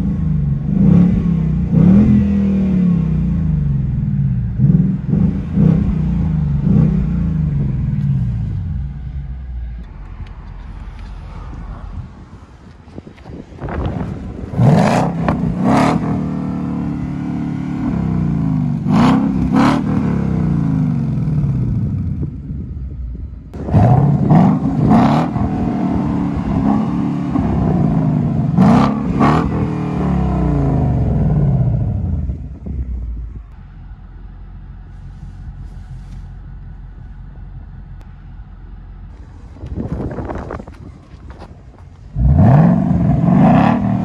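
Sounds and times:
car engine revving: 0.0s - 12.3s, 13.7s - 22.3s, 23.5s - 36.2s, 39.0s - 44.0s
exhaust cracks: 4.5s - 44.0s.

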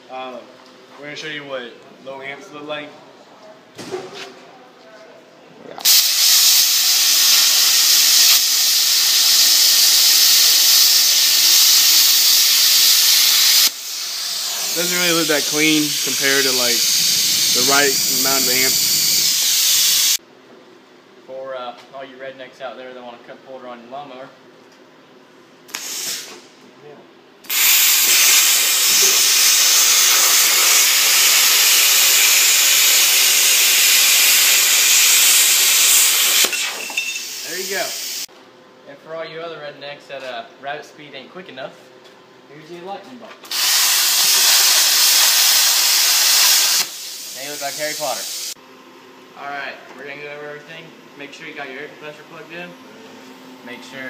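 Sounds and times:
plasma cutter hissing: 5.8s - 20.2s, 25.7s - 26.3s, 27.5s - 38.3s, 43.5s - 48.6s.

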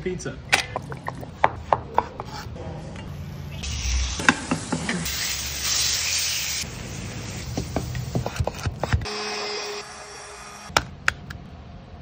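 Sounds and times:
food sizzling in pan: 3.6s - 7.5s.

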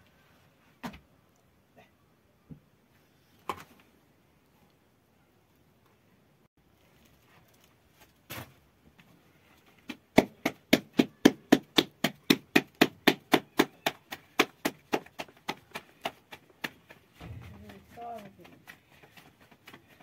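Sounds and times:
dough slapped between palms: 9.8s - 19.8s.

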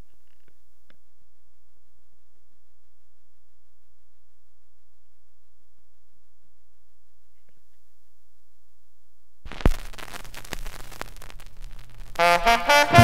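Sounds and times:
vinyl crackle and pops: 0.0s - 1.8s, 7.1s - 13.0s
record player hum: 0.0s - 13.0s
stylus dropping on vinyl click: 9.5s - 13.0s.

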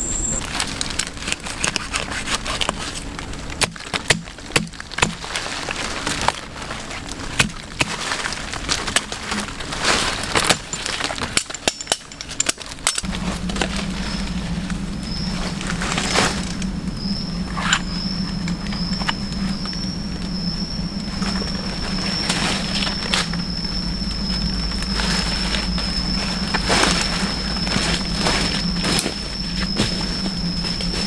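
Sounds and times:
knife scraping soil and roots: 1.0s - 3.2s.

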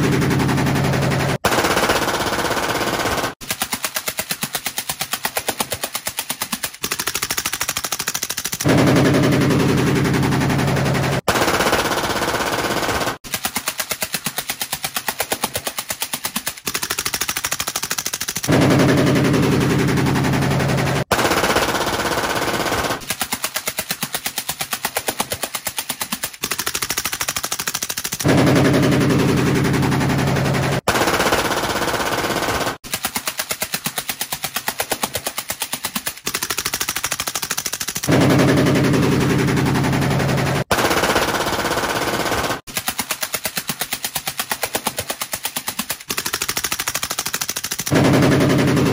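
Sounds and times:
suppressed rifle full-auto bursts: 0.0s - 3.7s, 6.8s - 13.3s, 16.7s - 23.2s, 26.4s - 32.8s, 36.3s - 42.7s, 46.0s - 48.9s
machine pistol full-auto burst: 0.0s - 4.4s, 6.8s - 16.0s, 16.6s - 33.0s, 36.2s - 43.9s, 44.6s - 48.9s
loud rifle burst: 17.4s - 23.1s, 30.8s - 32.8s, 36.9s - 42.7s.

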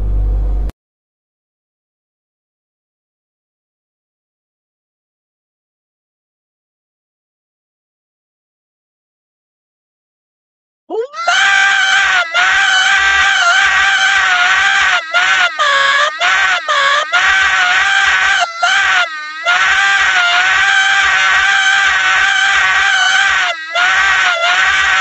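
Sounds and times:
high-pitched scream: 10.9s - 25.0s.

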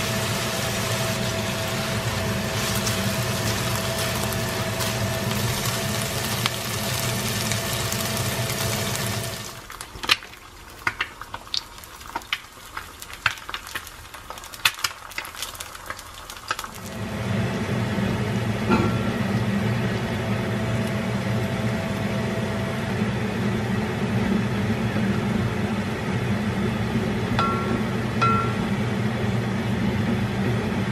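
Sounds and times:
egg sizzling and popping in oil: 0.0s - 17.0s
steady low hum: 16.8s - 30.9s.

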